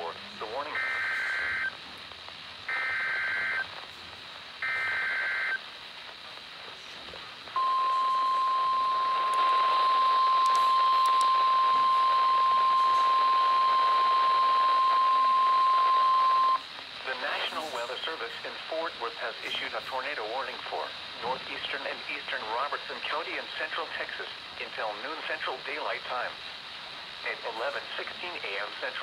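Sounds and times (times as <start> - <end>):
steady warning alarm tone: 0.6 - 1.7, 2.7 - 3.6, 4.6 - 5.6, 7.6 - 16.6.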